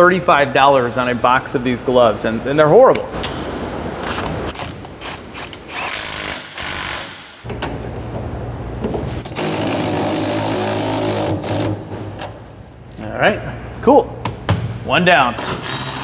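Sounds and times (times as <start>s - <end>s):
impact wrench hammering: 4.0s - 7.8s.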